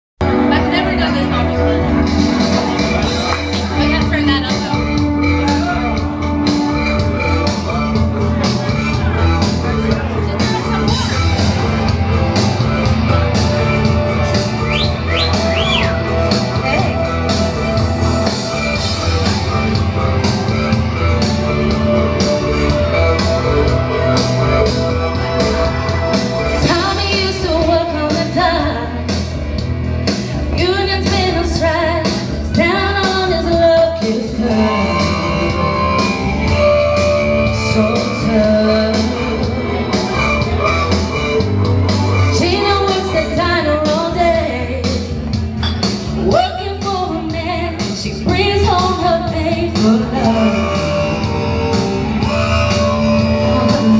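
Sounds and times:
rock backing track: 0.2 - 53.9
woman singing into microphone: 26.5 - 29.1, 30.4 - 36.2, 37.4 - 39.9, 42.2 - 45.3, 46.2 - 53.9.

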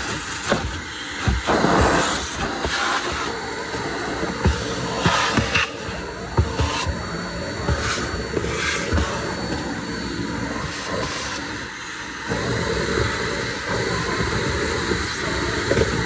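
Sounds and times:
vacuum cleaner running: 0.0 - 16.0.

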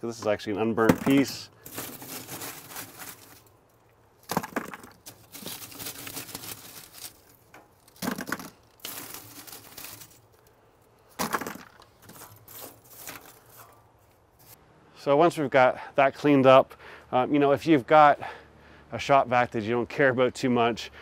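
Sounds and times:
charcoal clattering into bucket: 0.2 - 3.4, 4.2 - 10.4, 11.2 - 13.8
charcoal pieces rattling and scraping: 0.2 - 14.6.

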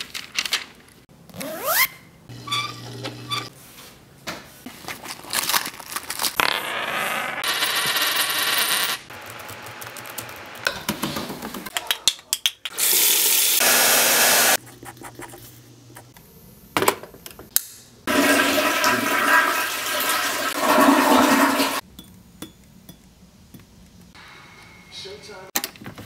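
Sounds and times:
toilet flushing: 18.1 - 21.8.

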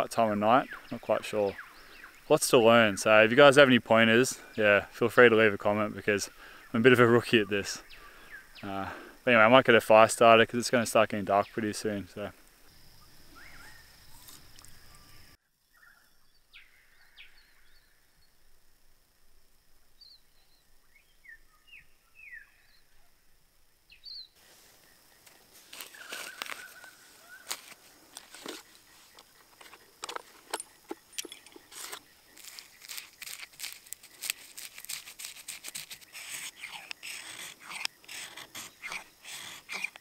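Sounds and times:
bird calls: 0.0 - 3.3, 6.2 - 9.2, 12.6 - 18.0, 23.9 - 40.0
knife shaving wood: 25.3 - 30.2, 31.6 - 40.0
knife scraping ferro rod: 31.6 - 40.0.

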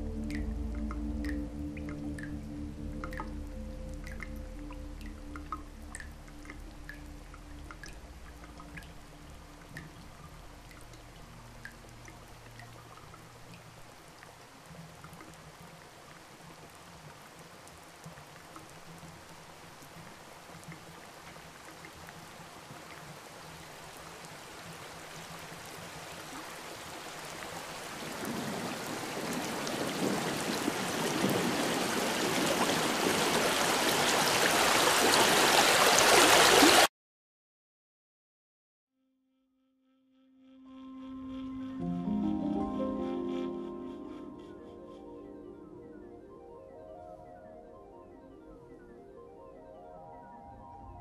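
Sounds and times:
faint drips: 0.0 - 28.5
rushing water-like noise: 0.0 - 36.9.

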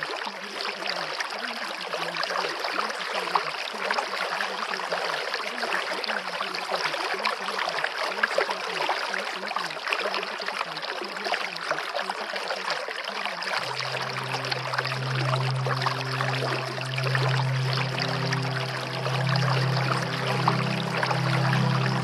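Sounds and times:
running water: 0.0 - 22.0
faint low wavering hum: 13.6 - 22.0.

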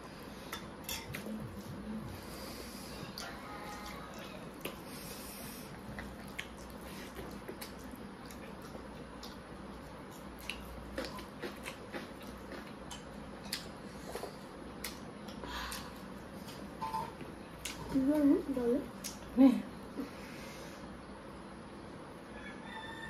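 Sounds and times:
chewing and lip smacks: 3.1 - 5.0, 5.7 - 16.6.

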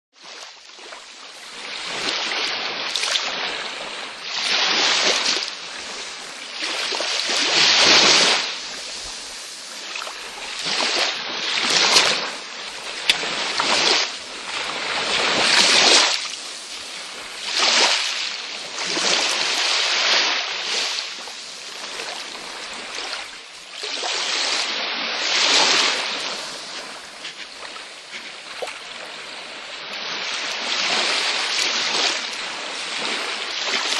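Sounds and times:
waves washing ashore: 0.2 - 33.9.

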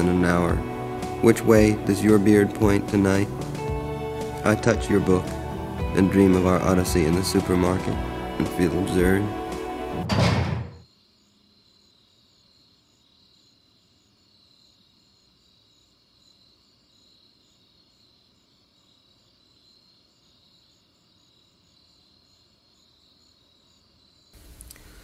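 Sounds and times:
faint crickets chirping: 10.7 - 25.0.

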